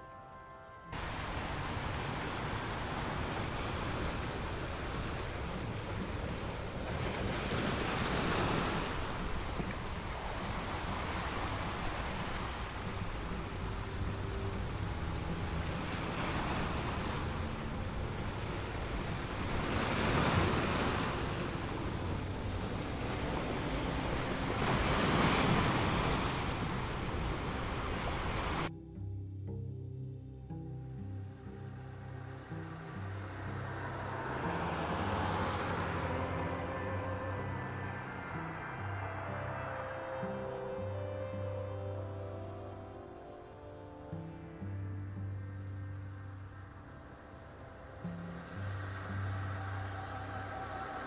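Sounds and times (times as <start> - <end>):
ocean surf breaking on beach: 0.9 - 28.7, 32.4 - 41.8, 47.0 - 51.0
wind on microphone: 1.0 - 28.7.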